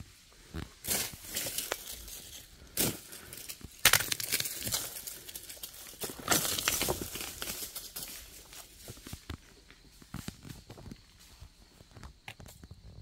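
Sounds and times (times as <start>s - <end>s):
rustling in dry leaves: 0.3s - 3.6s, 4.3s - 9.3s.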